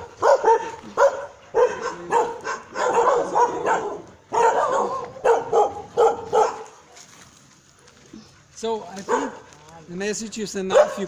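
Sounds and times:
dogs barking: 0.0s - 6.9s, 9.0s - 9.5s, 10.6s - 11.0s.

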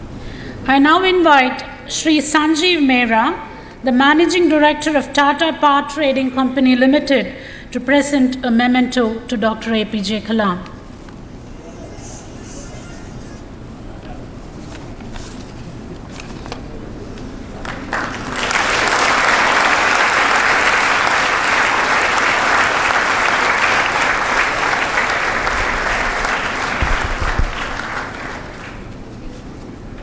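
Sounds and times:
audience applauding: 17.6s - 29.0s.

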